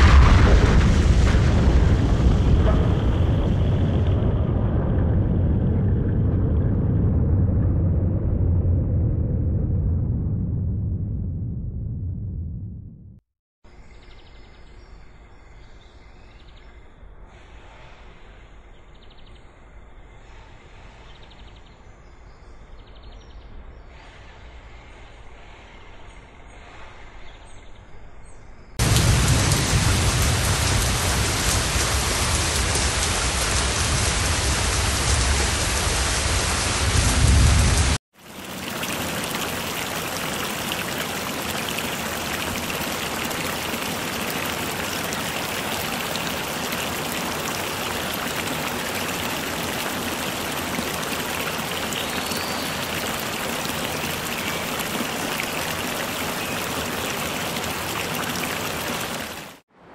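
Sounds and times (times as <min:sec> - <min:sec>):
steady rain hiss: 0:00.0 - 0:04.3, 0:28.8 - 0:59.6
heavy rain with low rumble: 0:00.0 - 0:11.0, 0:28.8 - 0:59.6.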